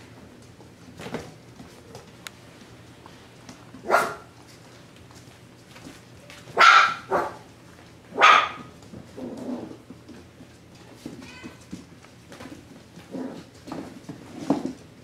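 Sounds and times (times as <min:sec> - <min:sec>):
puppies barking: 0:03.8 - 0:04.3, 0:06.6 - 0:07.5, 0:08.1 - 0:08.7.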